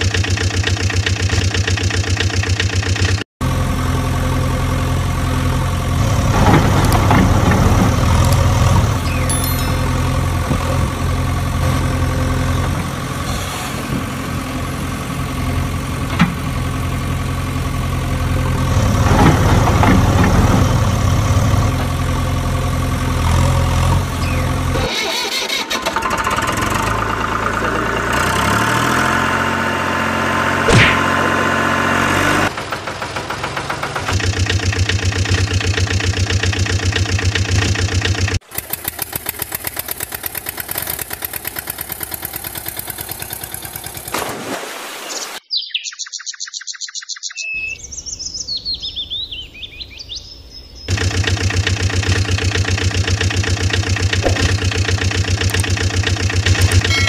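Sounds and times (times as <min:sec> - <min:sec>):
engine running: 0:00.0 - 0:44.6, 0:50.9 - 0:57.0
birds chirping: 0:09.0 - 0:10.2, 0:24.2 - 0:24.7, 0:44.9 - 0:51.4.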